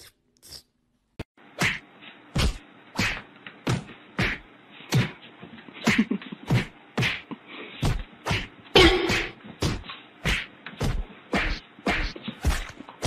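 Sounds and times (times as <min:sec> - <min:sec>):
sharp slapping whacks: 0:01.6 - 0:01.8, 0:02.4 - 0:05.2, 0:05.8 - 0:07.2, 0:07.8 - 0:12.7.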